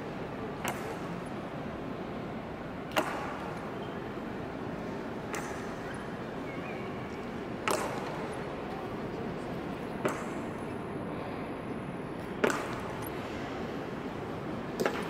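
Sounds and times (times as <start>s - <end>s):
murmur of crowd: 0.0s - 15.0s.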